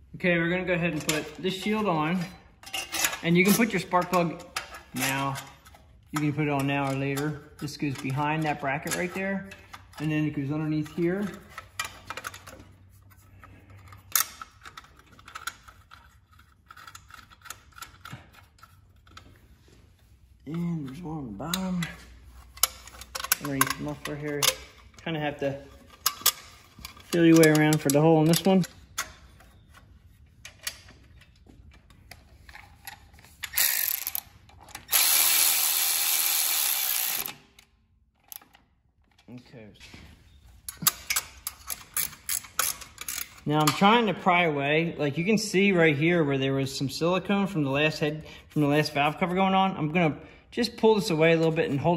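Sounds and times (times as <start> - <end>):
electric ratchet driving a bolt: 33.5 - 37.6.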